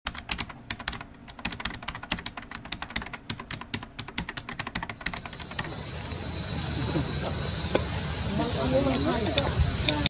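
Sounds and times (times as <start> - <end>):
keyboard typing clicks: 0.1 - 5.7.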